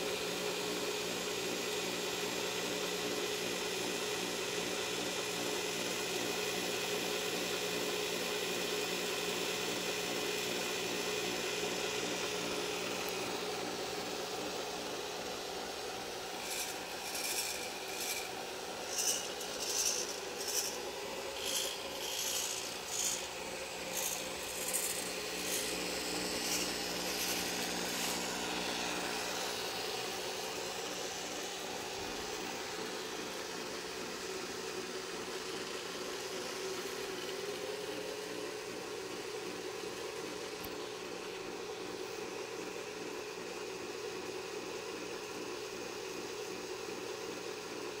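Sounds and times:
electric drill running: 0.2 - 34.7
short high-pitched servo whirs: 16.1 - 32.4.

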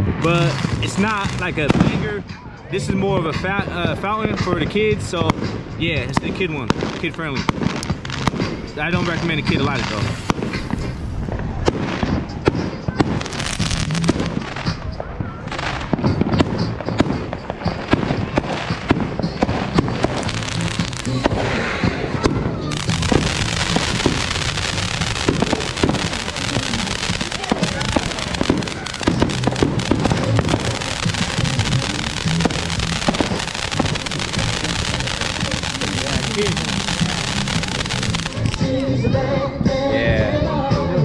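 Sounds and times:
fountain firework spraying sparks: 0.0 - 2.2, 13.0 - 14.9, 16.9 - 38.8
fireworks popping and banging: 0.0 - 38.9.

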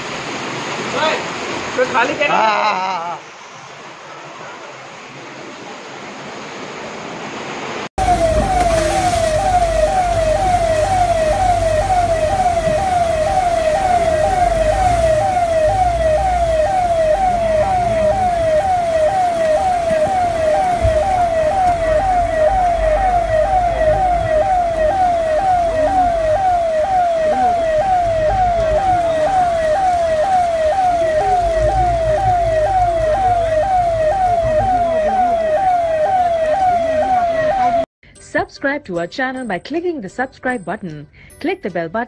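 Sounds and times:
electronic siren sweeping: 8.0 - 37.9.

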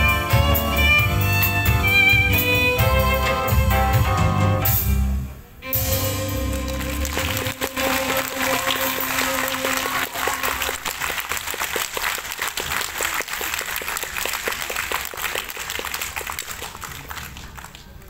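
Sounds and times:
audience applauding: 6.2 - 18.0.

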